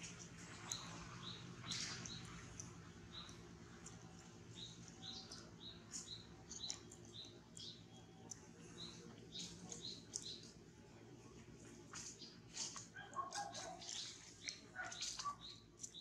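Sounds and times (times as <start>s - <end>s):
small bird chirping: 0.0s - 10.6s, 11.6s - 16.0s.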